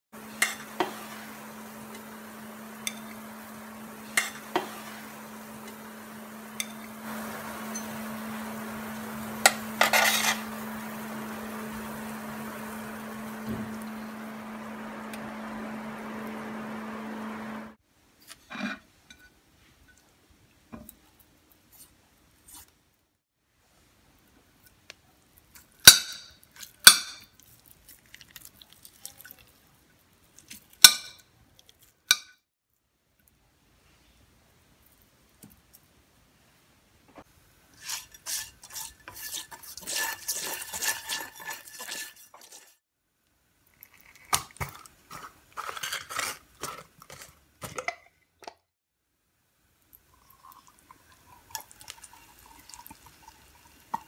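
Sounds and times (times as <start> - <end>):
steady hum with hiss: 0.2 - 18.2.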